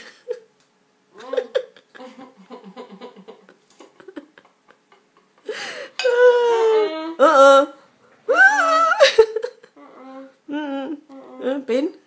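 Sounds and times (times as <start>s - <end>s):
woman giggling: 0.0s - 0.5s, 1.2s - 7.4s, 8.3s - 11.6s.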